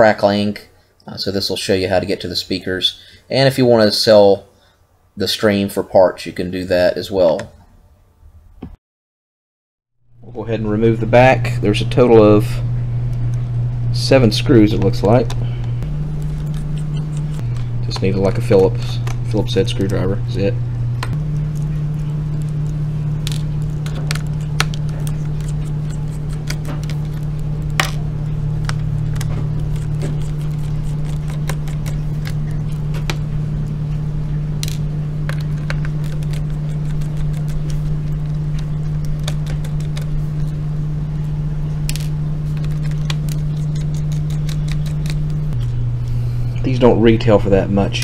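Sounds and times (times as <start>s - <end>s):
steady low hum: 10.0s - 48.0s.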